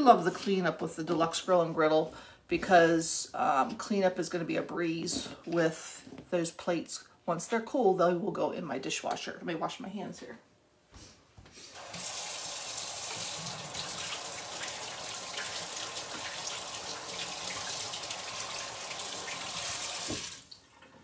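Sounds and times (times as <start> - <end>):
tap water running: 11.7 - 21.0.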